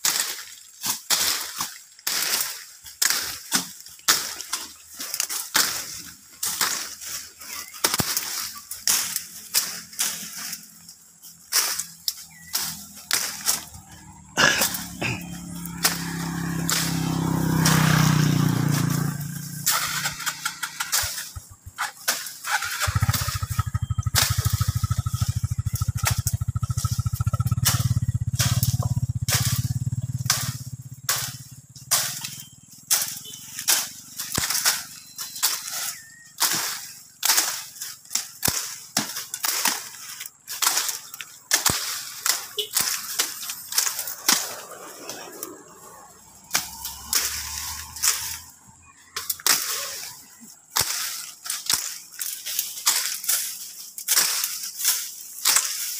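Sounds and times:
machete chopping brush: 0:00.0 - 0:55.9
small motorcycle engine running: 0:05.1 - 0:51.1
motorcycle passing: 0:08.3 - 0:21.8, 0:22.5 - 0:36.8, 0:41.0 - 0:51.1.

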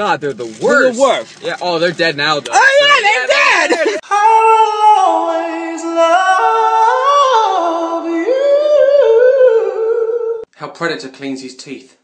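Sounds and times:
man singing a cappella: 0:03.8 - 0:10.5.

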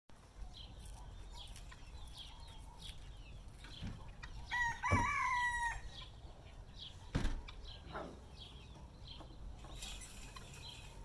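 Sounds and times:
rooster crowing: 0:04.5 - 0:06.0.

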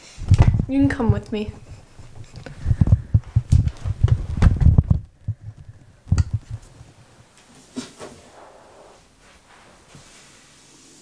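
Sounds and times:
handheld camera thumps and rumbling: 0:00.2 - 0:07.0.

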